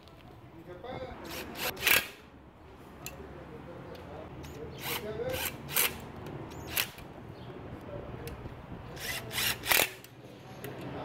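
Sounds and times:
power driver motor whirring: 0:09.0 - 0:10.1.

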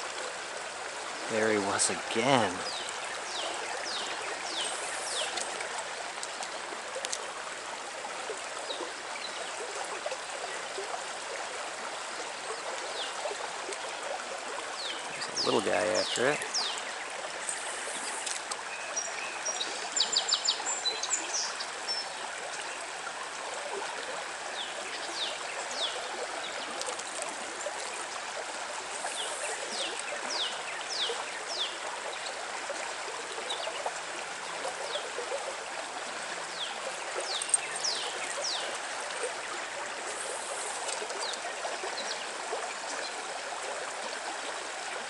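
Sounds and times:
stream water trickling: 0:00.0 - 0:45.0
songbirds chirping and trilling: 0:01.3 - 0:05.7, 0:14.7 - 0:22.3, 0:24.5 - 0:26.9, 0:28.9 - 0:32.4, 0:36.5 - 0:42.4.

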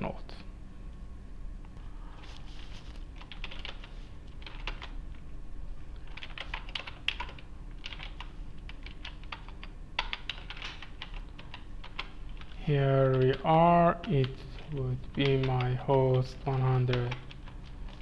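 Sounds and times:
computer keyboard typing: 0:03.2 - 0:05.0, 0:06.0 - 0:18.0.

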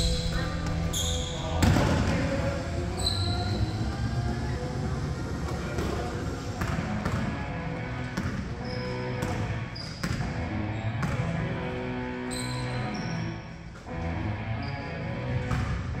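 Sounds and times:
sneakers squeaking: 0:00.0 - 0:04.6, 0:05.2 - 0:16.0
players' voices: 0:00.0 - 0:12.0
basketball bouncing on gym floor: 0:06.6 - 0:07.4, 0:08.2 - 0:08.5, 0:09.2 - 0:10.4, 0:11.0 - 0:11.4, 0:15.4 - 0:16.0.

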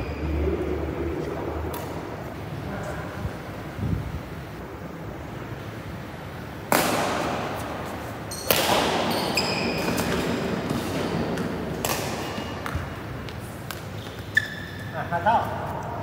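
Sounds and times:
racket hitting shuttlecock: 0:06.6 - 0:14.4
shoes squeaking on court: 0:07.6 - 0:11.5, 0:12.2 - 0:15.8.

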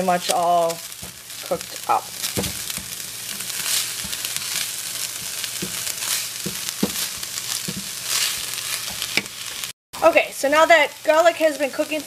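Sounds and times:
meat sizzling in a frying pan: 0:00.0 - 0:12.0
spoon knocking against pan: 0:05.2 - 0:09.3.

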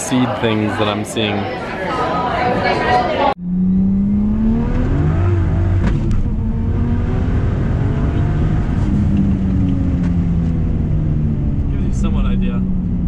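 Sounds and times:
car engine droning: 0:03.3 - 0:13.0
exhaust pops: 0:04.6 - 0:07.1, 0:07.9 - 0:13.0.

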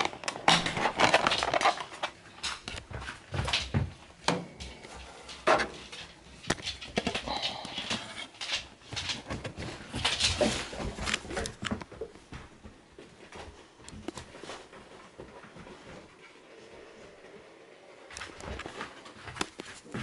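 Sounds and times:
plastic cases being handled: 0:00.0 - 0:04.4.

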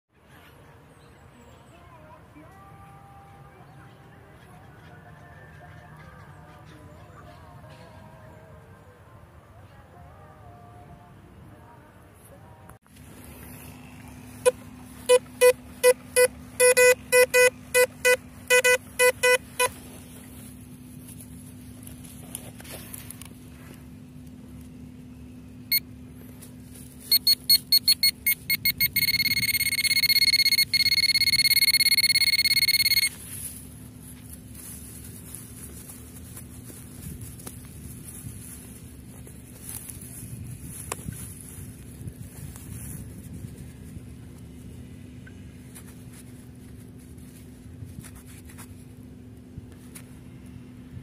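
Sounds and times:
faint steady hum: 0:07.6 - 0:51.0
metal detector beeps: 0:14.4 - 0:19.8, 0:27.0 - 0:33.5.

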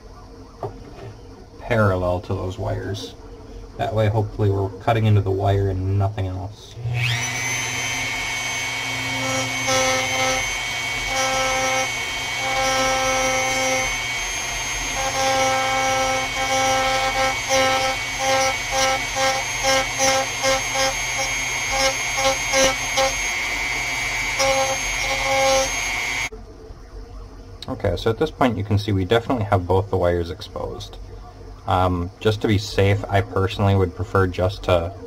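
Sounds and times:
rotary tool cutting with high whine: 0:06.7 - 0:26.3.

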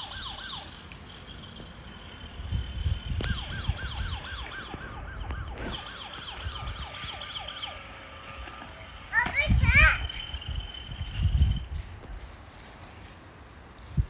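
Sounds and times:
toy electronic siren wailing: 0:00.0 - 0:11.7.

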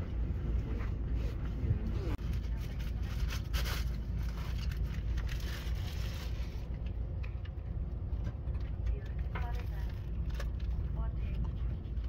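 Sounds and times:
train carriage rumble: 0:00.0 - 0:12.0
rustling and scraping: 0:00.6 - 0:07.5.

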